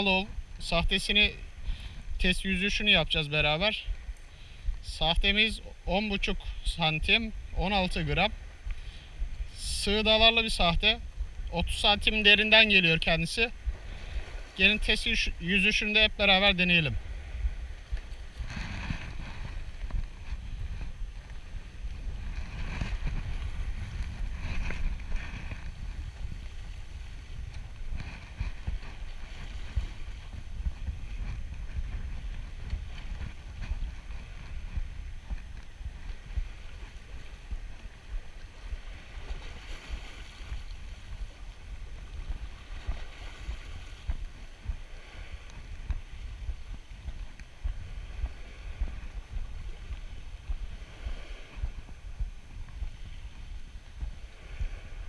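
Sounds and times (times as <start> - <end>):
wind on microphone: 0.0 - 55.0
sea washing against rocks: 9.4 - 53.1.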